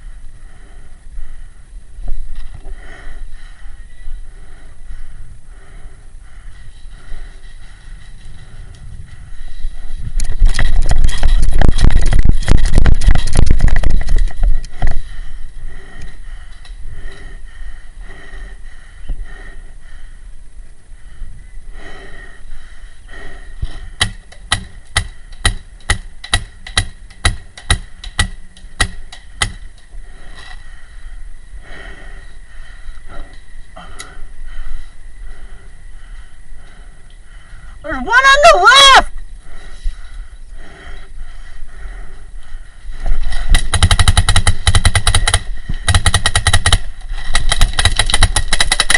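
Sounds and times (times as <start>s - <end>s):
paintball marker shots: 24.0s - 29.7s, 43.5s - 48.9s.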